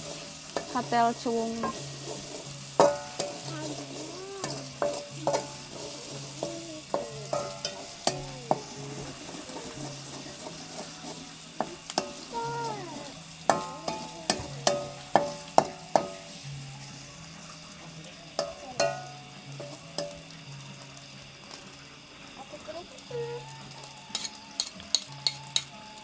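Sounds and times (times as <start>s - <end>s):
metal spatula scraping a wok: 0.0s - 16.6s, 24.0s - 25.8s
food sizzling in a wok: 0.0s - 26.0s.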